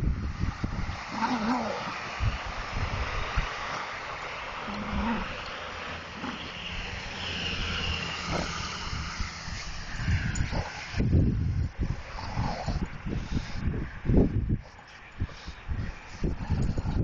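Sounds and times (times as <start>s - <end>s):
dogs growling playfully: 1.0s - 2.1s, 4.6s - 6.5s.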